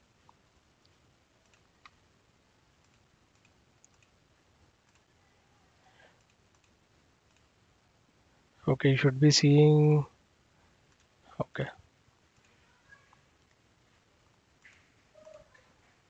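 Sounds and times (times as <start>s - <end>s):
faint computer mouse clicks: 0.3s - 2.0s, 2.8s - 4.2s, 6.2s - 7.5s, 14.6s - 15.4s.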